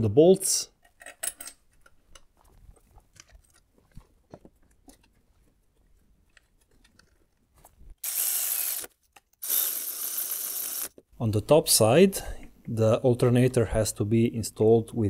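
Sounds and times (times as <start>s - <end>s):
electric ratchet running: 8.0s - 11.0s.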